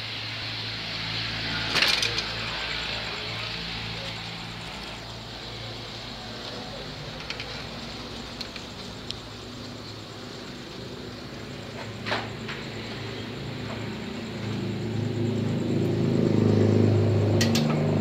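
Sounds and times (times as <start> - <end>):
motorbike rattling: 1.5 - 5.0
loud clatter: 1.6 - 2.6.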